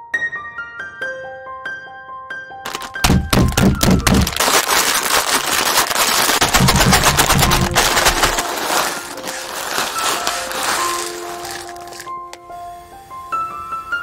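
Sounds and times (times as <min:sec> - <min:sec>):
plastic wrapper crinkling: 0:02.6 - 0:12.4
dry noodles crackling and snapping: 0:02.6 - 0:12.5
noodle pieces rattling into bowl: 0:02.7 - 0:12.4.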